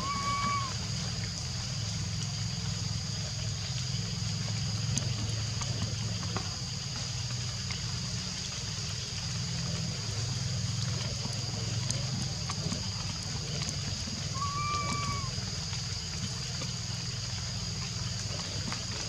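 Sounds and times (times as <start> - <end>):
constant low hum: 0.0 - 19.0
faint ticks: 4.8 - 8.4, 10.7 - 14.4.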